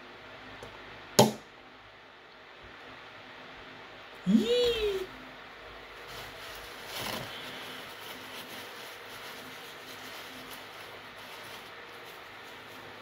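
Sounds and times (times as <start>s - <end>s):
paper tissue rustling and crinkling: 5.8s - 13.0s.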